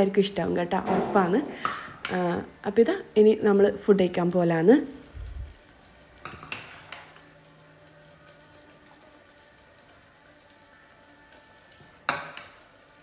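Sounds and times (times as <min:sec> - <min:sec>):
soft liquid sounds: 0:04.1 - 0:12.0.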